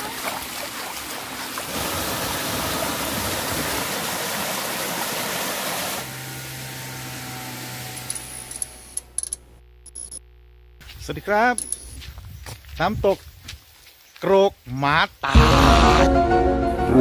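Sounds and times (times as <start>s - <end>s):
stream splashing over rocks: 0.0s - 6.1s
steady low hum: 8.0s - 12.4s.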